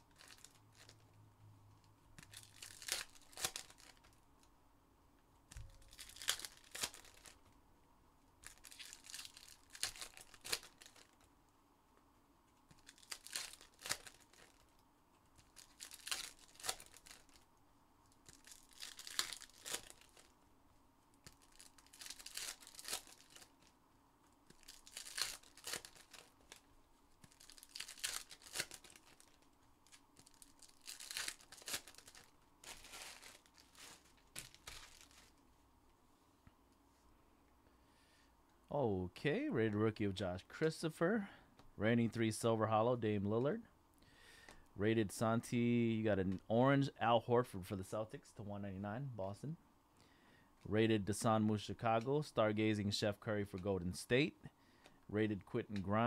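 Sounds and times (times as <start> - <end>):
foil packs tearing and crinkling: 0.1 - 1.0, 2.2 - 4.0, 5.8 - 7.4, 8.4 - 11.2, 12.8 - 14.7, 15.4 - 17.4, 18.2 - 20.3, 21.3 - 23.7, 24.5 - 26.6, 27.2 - 35.4.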